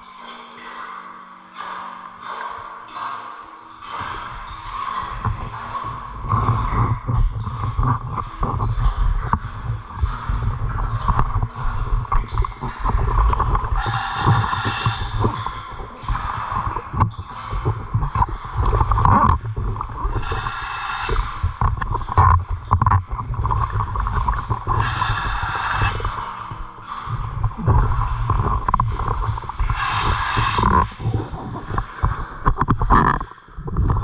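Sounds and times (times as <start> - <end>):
bubbling exhalations: 4.1 - 34.0
regulator hissing inhalations: 20.2 - 21.4, 24.8 - 26.2, 29.8 - 30.9.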